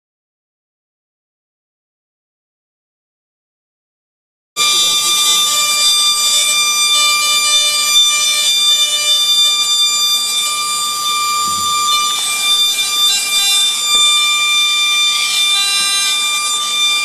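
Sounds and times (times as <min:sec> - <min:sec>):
milling handpiece whining: 0:04.6 - 0:17.0.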